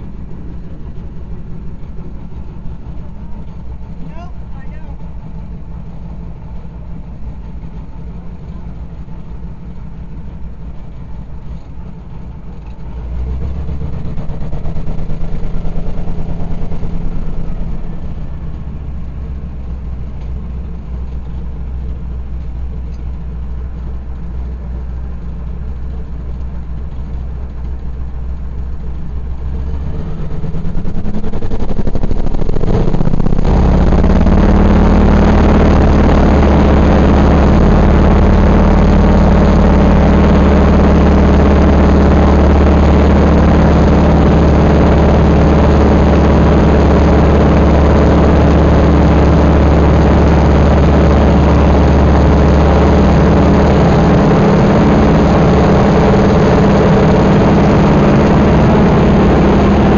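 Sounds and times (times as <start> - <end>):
radial aircraft engine drone: 0.0 - 59.9.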